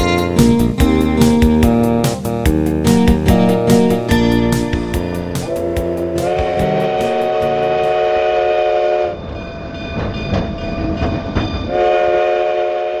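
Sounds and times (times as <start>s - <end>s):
steam locomotive chime whistle: 5.2s - 10.1s, 11.6s - 13.0s
scattered knocks: 9.9s - 11.7s.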